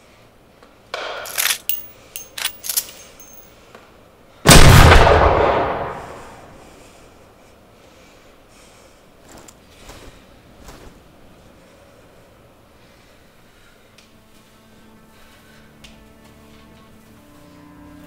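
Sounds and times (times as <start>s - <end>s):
rifle rattles and clicks: 1.0s - 3.5s
loud rifle shot with echo: 4.5s - 6.6s.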